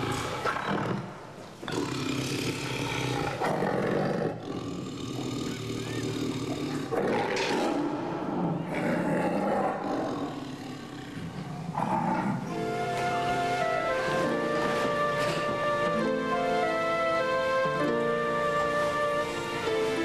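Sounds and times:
tiger growling and snarling: 0.0s - 12.5s.

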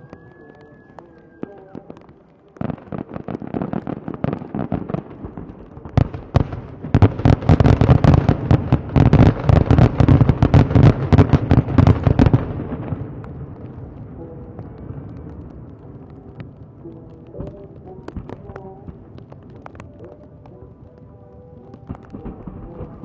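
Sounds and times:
fireworks bangs and crackles: 0.0s - 23.0s
rumble: 10.0s - 20.2s.

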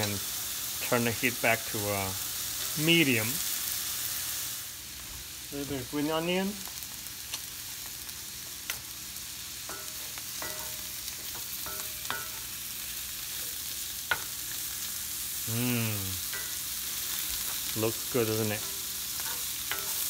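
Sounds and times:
mushrooms sizzling in butter: 0.0s - 20.0s.

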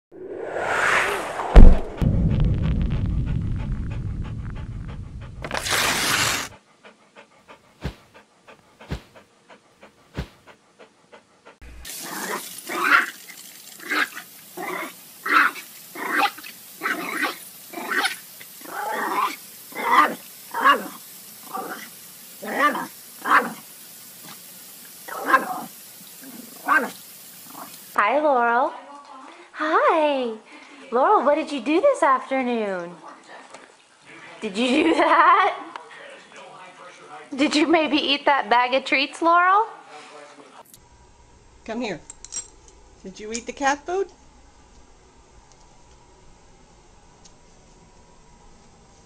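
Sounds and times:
swoosh: 0.1s - 5.5s
whoosh ending in thud: 0.1s - 5.5s
dog panting: 3.7s - 5.5s, 6.3s - 11.6s
hiss of water spray: 5.4s - 6.6s, 11.8s - 28.0s
dog barking: 25.1s - 25.6s, 26.6s - 27.0s.

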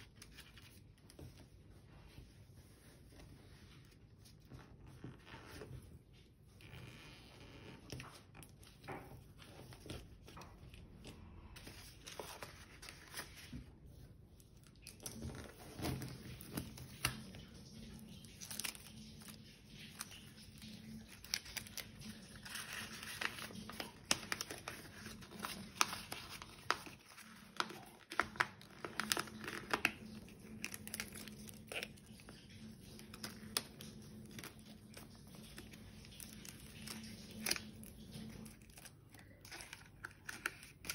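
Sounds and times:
paper rustling and crinkling: 0.0s - 40.9s.

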